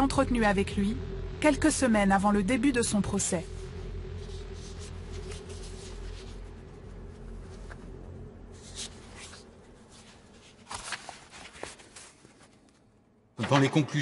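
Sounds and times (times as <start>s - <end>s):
low steady hum: 0.0s - 13.8s
paper rustling: 8.6s - 12.9s.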